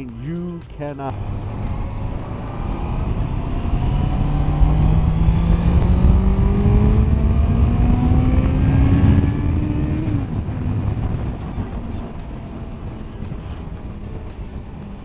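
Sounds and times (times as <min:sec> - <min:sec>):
motorcycle engine accelerating: 0:01.1 - 0:15.0
wind noise: 0:01.1 - 0:15.0.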